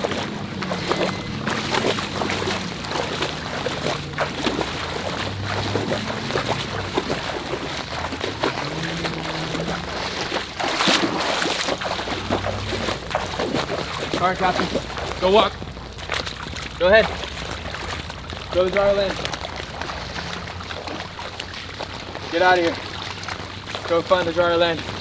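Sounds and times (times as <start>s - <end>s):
footsteps splashing through water: 0.0s - 25.0s.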